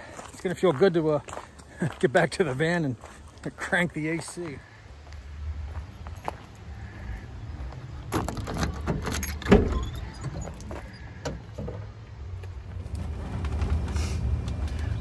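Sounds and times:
sliding van door opening: 8.1 - 11.8, 12.7 - 14.8.

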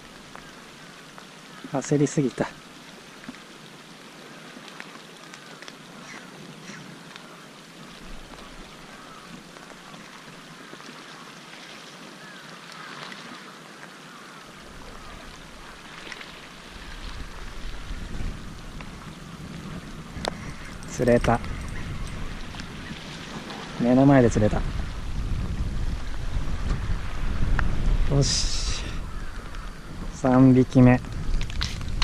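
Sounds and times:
light wind: 0.0 - 32.0
faint ticks: 4.6 - 7.4
wind rumble on microphone: 14.6 - 32.0.

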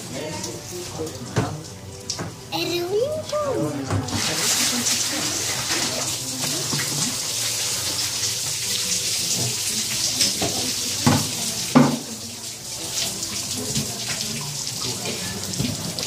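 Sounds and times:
water splashing from bucket: 3.8 - 16.0.

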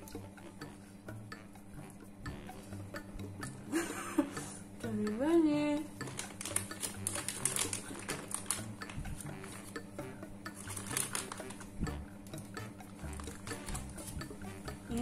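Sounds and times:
plastic packaging crinkling: 6.0 - 9.7, 10.6 - 11.7.

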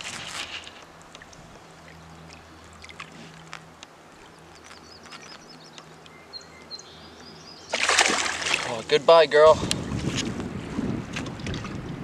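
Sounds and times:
water dripping and splashing: 0.0 - 6.2, 7.7 - 8.9
bird chirping: 4.2 - 7.8.

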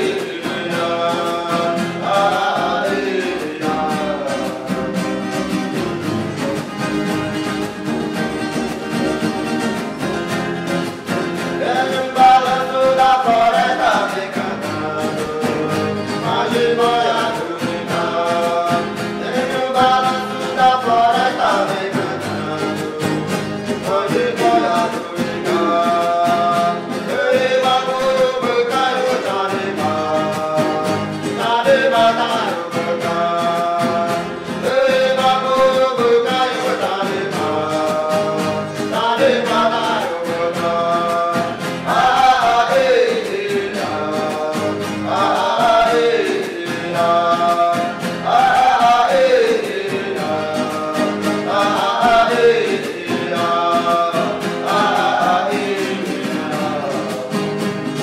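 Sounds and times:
several voices chanting: 0.0 - 6.7, 10.9 - 57.4
strummed acoustic guitar: 0.0 - 58.0.

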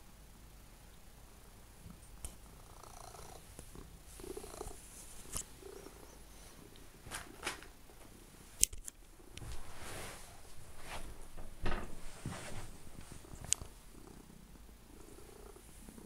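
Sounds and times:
cat purring: 1.3 - 7.0, 12.0 - 16.0
sharp clicks and knocks: 11.2 - 12.0.

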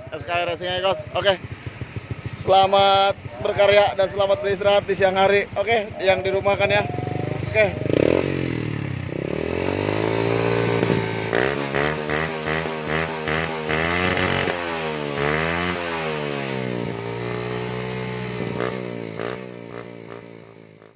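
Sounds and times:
motorcycle engine revving: 0.0 - 20.9.

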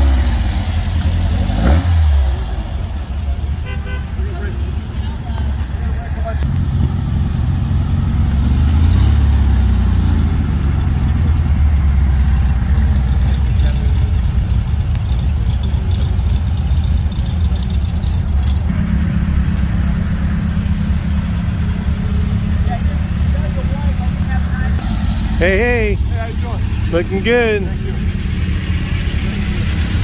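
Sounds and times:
car driving off: 0.0 - 30.0
van engine idling: 9.2 - 30.0.

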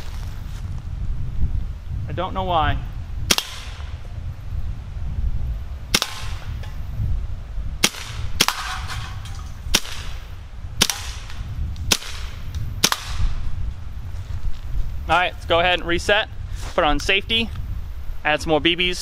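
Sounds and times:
bb pistol shots: 3.3 - 3.9, 5.9 - 6.5, 7.8 - 10.2, 10.8 - 13.3.

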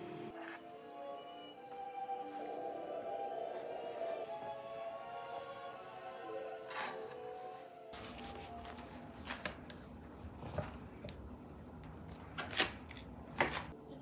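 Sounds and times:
music: 0.0 - 9.0.

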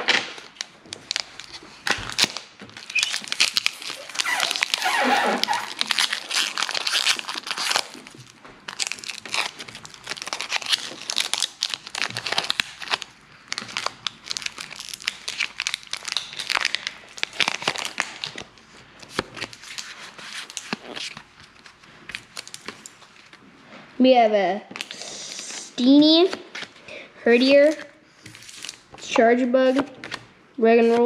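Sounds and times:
foil wrapper crinkling and tearing: 0.1 - 23.4, 27.5 - 29.0.

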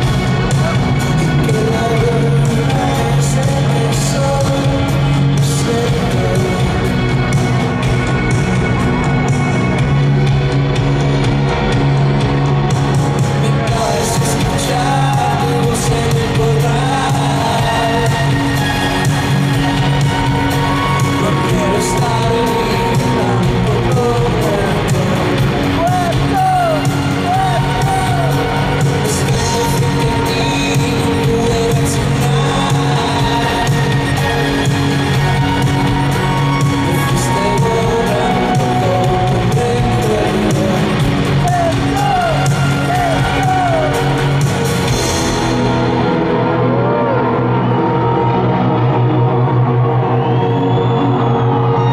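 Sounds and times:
man singing: 0.0 - 7.5, 13.2 - 44.6
drums with cymbals: 0.0 - 45.9
bass: 0.0 - 51.9
guitar chords: 0.0 - 51.9
rock band playing: 0.0 - 51.9.

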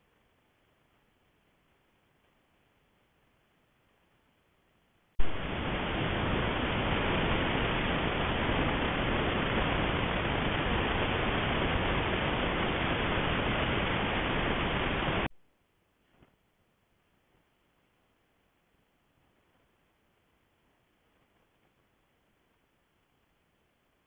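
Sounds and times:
electronic hiss: 5.2 - 15.3.

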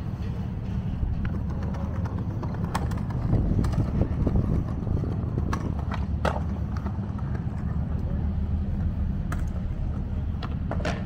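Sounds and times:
steady low rumble: 0.0 - 11.0
skateboards clacking on stone: 1.0 - 11.0.

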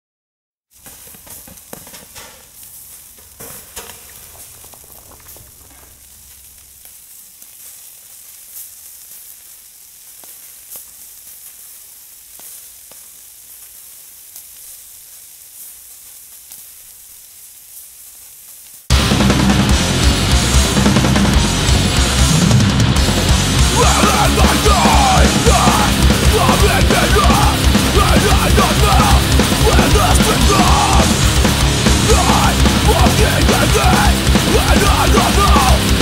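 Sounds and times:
fat crackling and popping: 0.7 - 36.0
meat skewers sizzling on grill: 2.5 - 19.0.

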